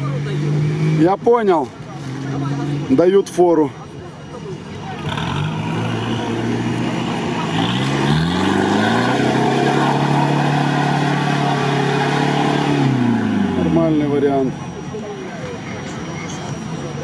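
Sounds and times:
off-road vehicle engine revving: 0:00.0 - 0:03.4, 0:04.8 - 0:14.9.

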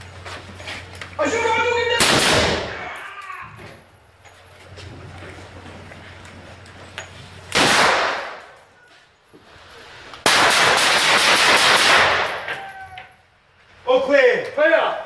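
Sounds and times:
gunfire in enclosed room: 0:02.0 - 0:02.8, 0:07.5 - 0:08.6, 0:10.2 - 0:12.5.

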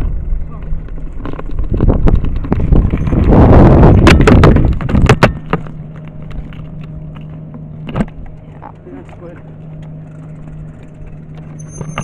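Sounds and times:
wind buffeting microphone: 0:00.0 - 0:05.4.

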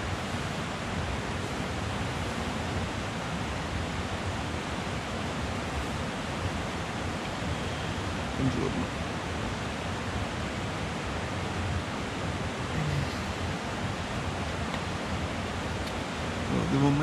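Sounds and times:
mountain stream rushing: 0:00.0 - 0:17.0.

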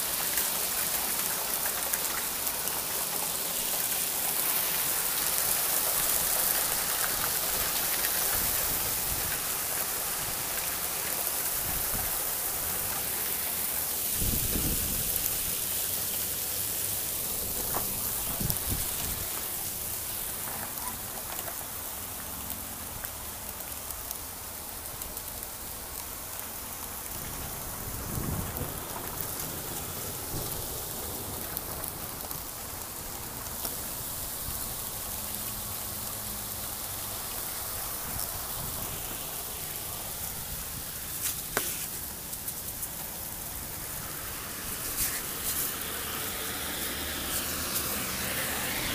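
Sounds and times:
hail and rain pelting down: 0:00.0 - 0:48.9.

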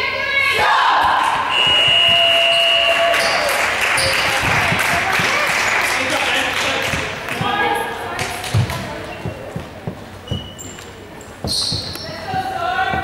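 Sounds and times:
players talking and calling: 0:00.0 - 0:13.0
basketball bouncing: 0:03.2 - 0:05.5, 0:06.9 - 0:10.8, 0:11.4 - 0:13.0.

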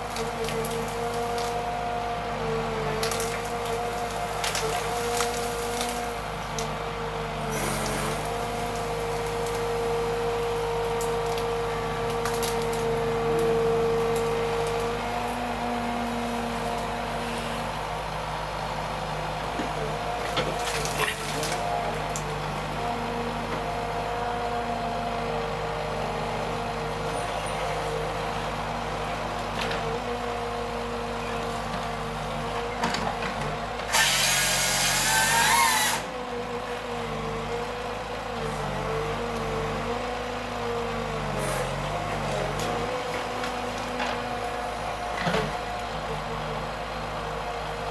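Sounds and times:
harvester engine running: 0:00.0 - 0:47.9
chainsaw bar cutting trunk: 0:33.9 - 0:36.1.

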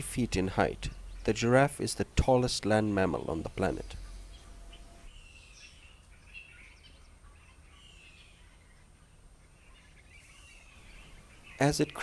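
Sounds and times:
low steady rumble: 0:00.0 - 0:05.1
faint high bird calls: 0:02.8 - 0:12.0.

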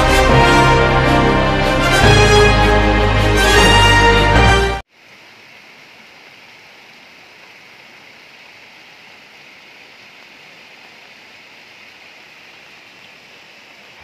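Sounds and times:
running water: 0:04.8 - 0:14.0
rain hiss: 0:04.9 - 0:14.0.

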